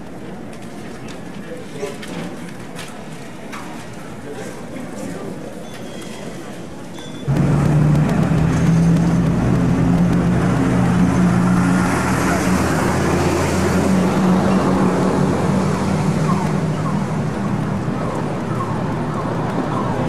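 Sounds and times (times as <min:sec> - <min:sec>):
vehicle engine humming: 0:07.3 - 0:19.6
road noise: 0:07.3 - 0:20.0.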